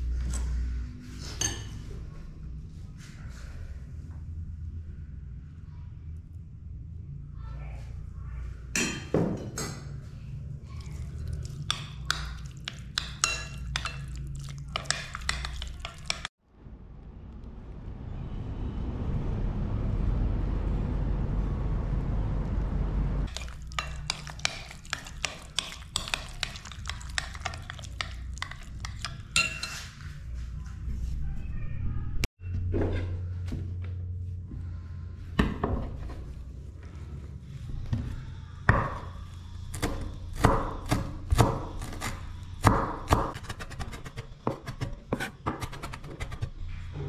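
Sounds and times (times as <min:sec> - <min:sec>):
spoon scraping glass bowl: 0:10.8 - 0:16.3, 0:23.3 - 0:30.0
rushing noise with low rumble: 0:16.4 - 0:23.3.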